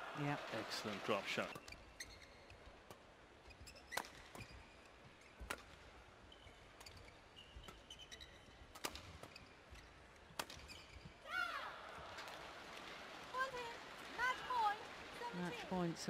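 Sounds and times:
court shoes squeaking: 0.5 - 11.3
rackets striking shuttlecock: 3.7 - 4.6, 5.2 - 11.0.

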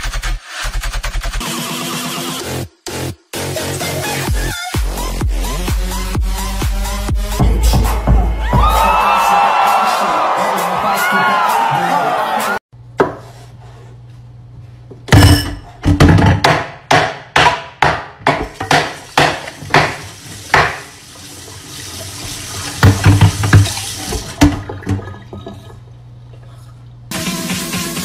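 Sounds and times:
tap water running into sink: 18.4 - 25.8
sharp clatters in sink: 22.7 - 25.2.

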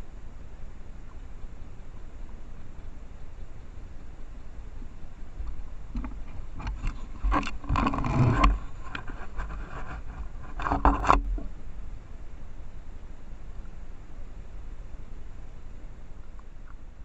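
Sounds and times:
microphone hiss: 0.0 - 17.0
water splashing and sloshing: 3.7 - 11.8.

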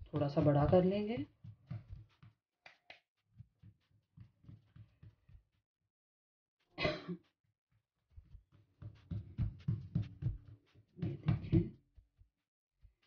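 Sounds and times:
hands patting dough on wood: 0.0 - 5.5
cough-like burst: 6.8 - 7.2.

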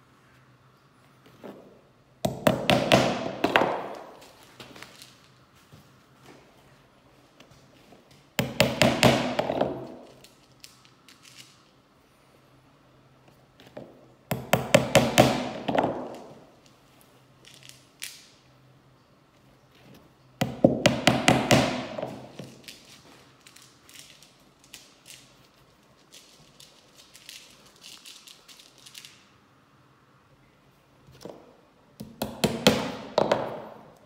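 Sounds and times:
hammer striking tacks: 2.2 - 4.0, 8.4 - 9.9, 20.4 - 22.3.

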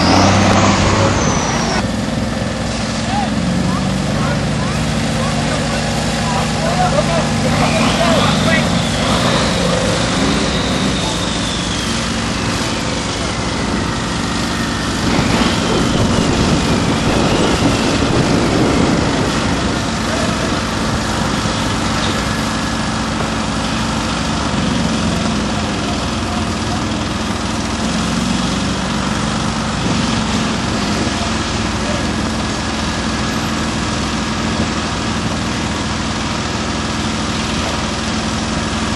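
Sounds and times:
truck engine running: 0.0 - 38.9
faint high whine: 6.8 - 19.0.

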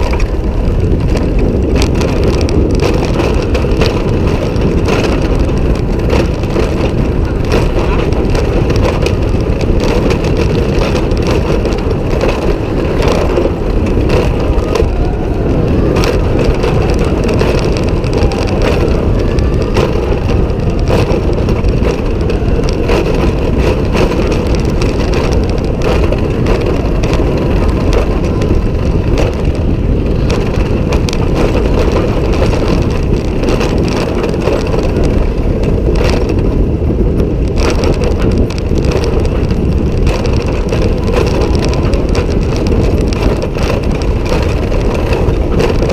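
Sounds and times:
roller coaster rumbling on track: 0.0 - 45.9
wind buffeting microphone: 0.0 - 45.9
clatter of small knocks: 37.4 - 45.9.

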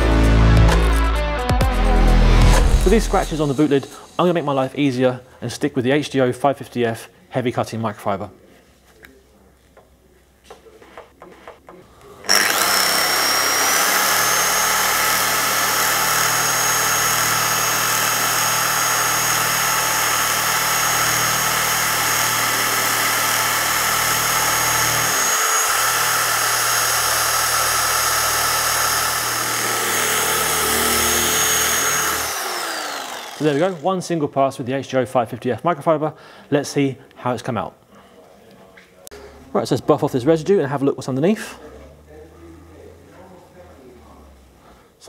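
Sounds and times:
polisher whining and humming: 12.2 - 33.8.

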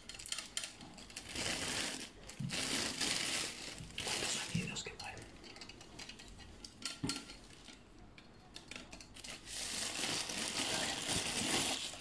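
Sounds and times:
plastic bag crinkling: 0.0 - 4.9, 9.2 - 12.0.

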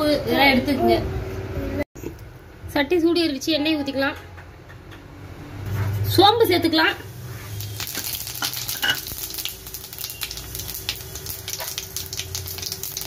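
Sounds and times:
seeds sizzling in hot oil: 7.0 - 13.0
seeds crackling and popping: 7.5 - 13.0.

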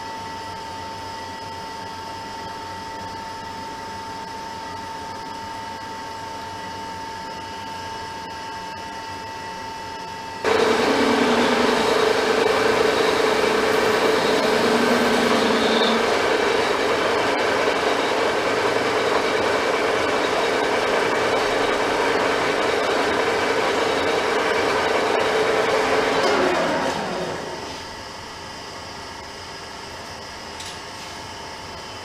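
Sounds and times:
metal lathe humming: 10.4 - 28.0.

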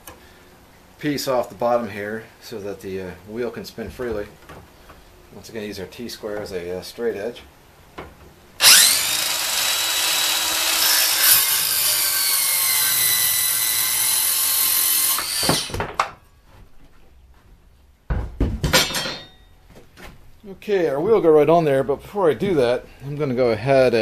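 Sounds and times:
circular saw cutting wood: 8.6 - 15.8.

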